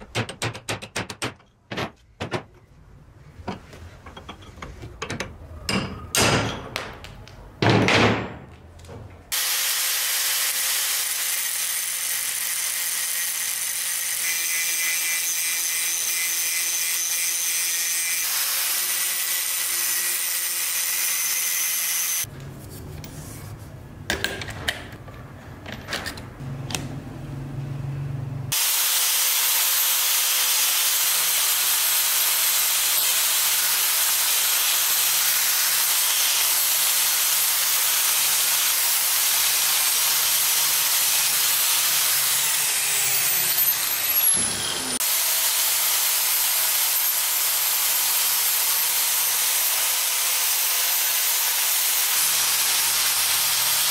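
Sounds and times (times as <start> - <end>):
scattered knocks: 0.0 - 2.6
angle grinder grinding metal: 9.4 - 22.3, 28.5 - 53.9.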